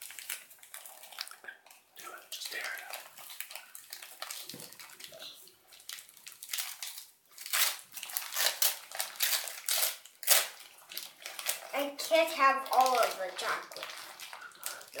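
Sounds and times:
wrapping paper crinkling: 0.0s - 15.0s
paper tearing rips: 6.4s - 10.7s.

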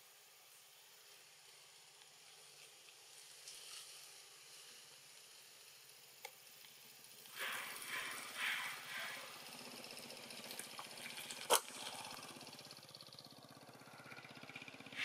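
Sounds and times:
macaques calling: 7.3s - 9.8s.

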